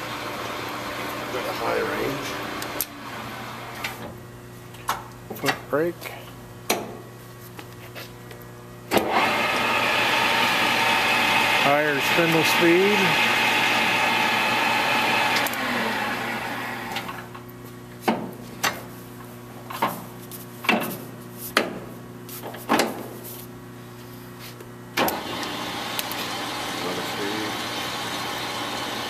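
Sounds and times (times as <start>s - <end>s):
lathe spindle running: 0.0s - 3.8s, 9.0s - 17.2s, 25.2s - 29.0s.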